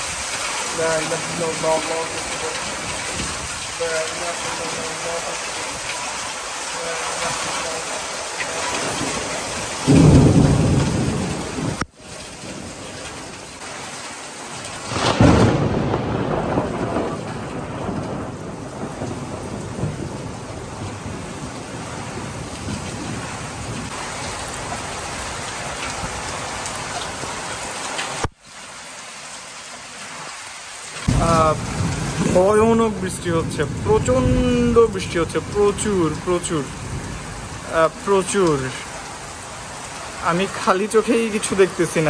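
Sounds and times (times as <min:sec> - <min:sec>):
thunder rumbling: 0:00.0 - 0:13.4, 0:14.8 - 0:26.4, 0:31.0 - 0:39.0
heavy rain pouring: 0:00.0 - 0:42.0
thunderclap: 0:08.6 - 0:11.9, 0:14.8 - 0:24.0, 0:31.0 - 0:38.0.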